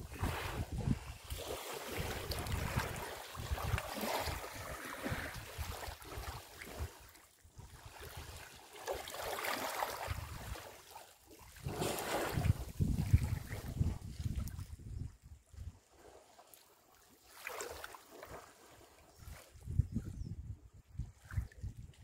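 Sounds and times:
wind buffeting microphone: 0.0s - 6.9s, 11.6s - 15.8s, 19.2s - 22.0s
water sloshing and lapping: 0.0s - 20.2s, 20.8s - 22.0s.

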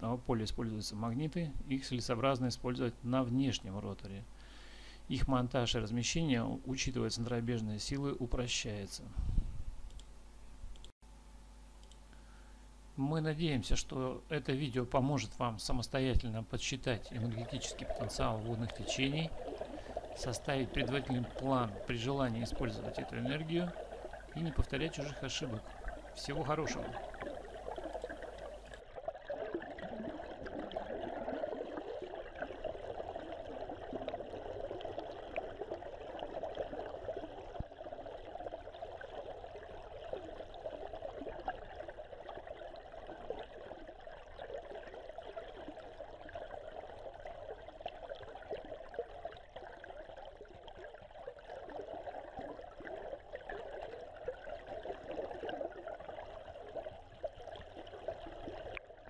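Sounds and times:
river water rushing underwater: 16.8s - 59.0s.

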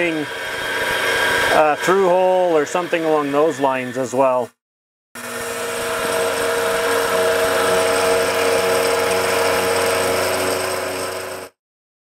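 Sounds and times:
milling spindle whine: 0.0s - 4.4s, 5.2s - 11.5s.

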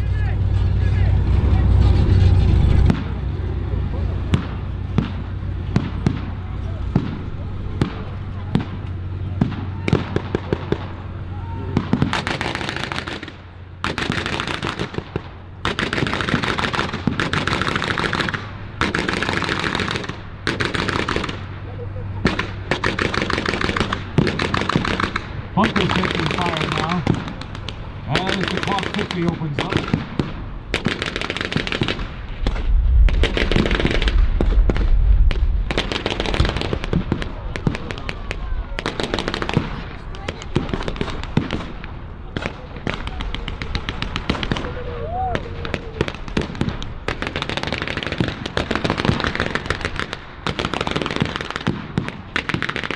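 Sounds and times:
heavy low rumble: 0.0s - 14.2s, 20.2s - 47.4s
machine-gun fire bursts: 11.8s - 21.5s, 22.2s - 34.8s, 35.7s - 41.8s, 46.0s - 52.9s
low steady hum: 21.2s - 38.8s.

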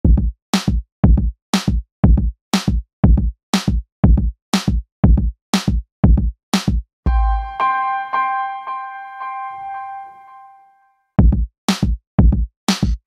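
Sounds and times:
drum machine beat: 0.0s - 7.9s, 11.2s - 13.0s.

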